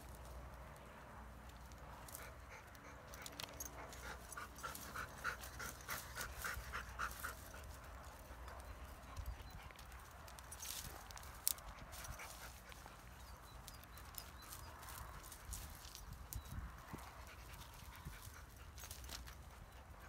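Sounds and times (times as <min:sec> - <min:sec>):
light clicks and scuffs: 0:00.0 - 0:20.0
dog panting: 0:02.1 - 0:10.3, 0:16.8 - 0:20.0.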